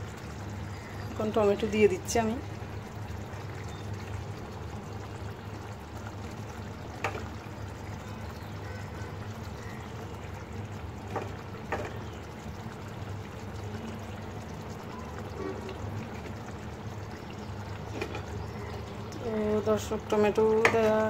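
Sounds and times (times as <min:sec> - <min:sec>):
curry bubbling in a metal pot: 0:00.0 - 0:21.0.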